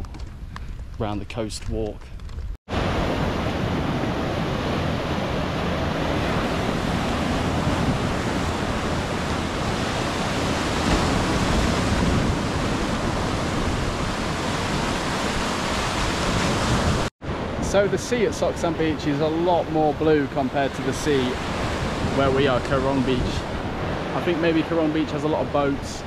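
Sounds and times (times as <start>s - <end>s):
wind on microphone: 2.0s - 17.9s, 20.4s - 24.3s
waves breaking on beach: 2.7s - 25.9s.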